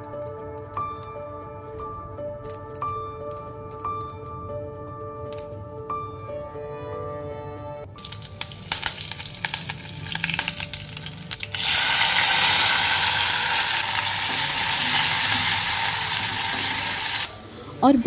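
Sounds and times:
leaves crackling in hot oil: 0:08.0 - 0:18.0
vegetables sizzling in oil: 0:08.0 - 0:18.0.

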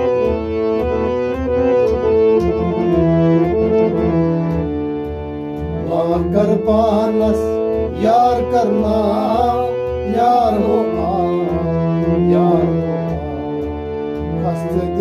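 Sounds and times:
harmonium melody: 0:00.0 - 0:15.0
man singing: 0:05.8 - 0:15.0.

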